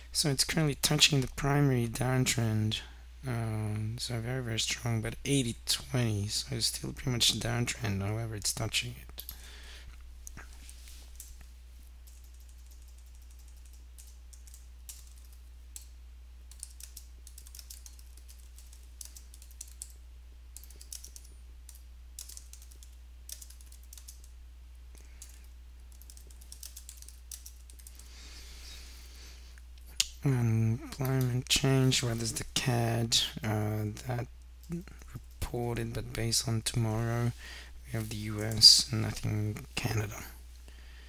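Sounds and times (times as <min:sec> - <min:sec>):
low electrical hum: 0:00.0 - 0:41.0
computer keyboard typing: 0:12.0 - 0:15.9, 0:16.5 - 0:20.0, 0:20.6 - 0:24.3, 0:24.9 - 0:28.1.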